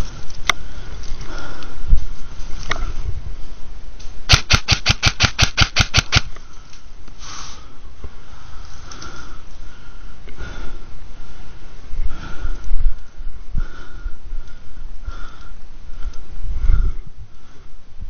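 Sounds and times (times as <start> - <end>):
airsoft gun rapid firing: 4.3 - 6.3.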